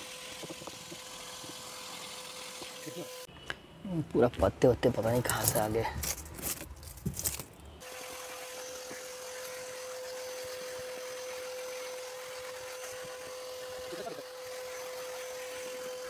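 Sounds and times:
vacuum cleaner humming: 0.0s - 3.3s, 7.8s - 16.0s.

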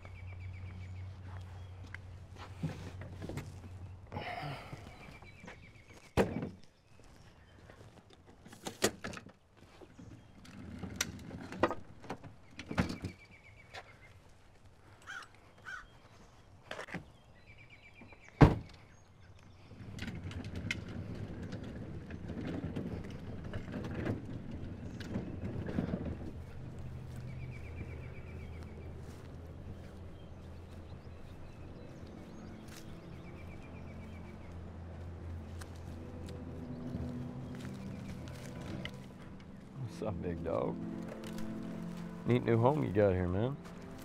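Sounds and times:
low rumble: 20.0s - 44.0s.

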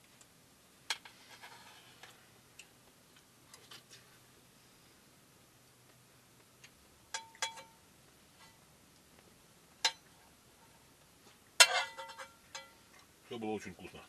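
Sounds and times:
cutlery clinking on frying pan: 7.2s - 7.8s, 9.8s - 10.2s, 11.6s - 12.8s.

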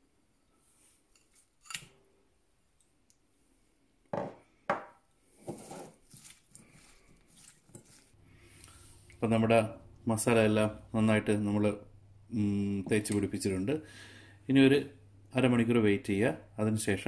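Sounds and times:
hands squelching fish in marinade: 5.9s - 9.2s.

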